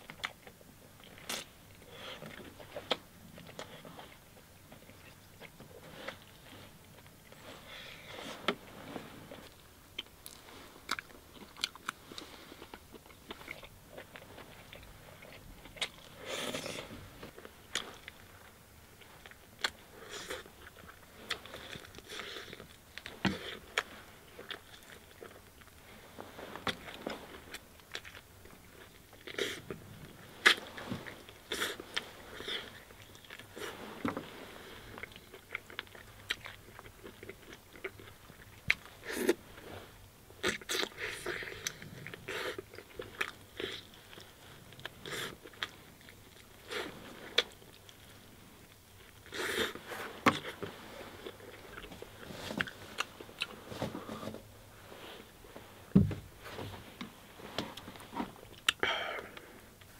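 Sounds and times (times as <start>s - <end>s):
person chewing with crunches: 0.0s - 59.9s.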